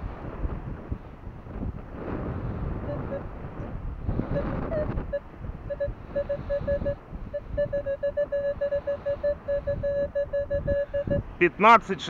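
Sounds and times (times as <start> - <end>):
wind rumble on microphone: 0.0 - 11.5
metal detector short beeps: 2.8 - 3.3, 4.3 - 11.2.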